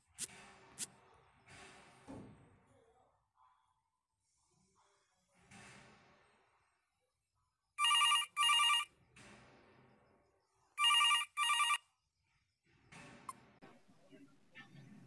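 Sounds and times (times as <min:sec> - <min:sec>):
phone ringing electronic double ring: 0:07.8 - 0:08.9, 0:10.8 - 0:11.8.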